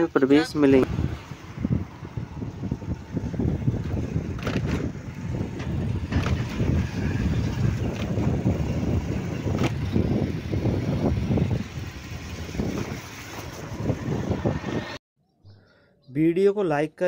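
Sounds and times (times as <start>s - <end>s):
engine and road rumble: 0.0s - 16.2s
wind buffeting microphone: 0.4s - 15.0s.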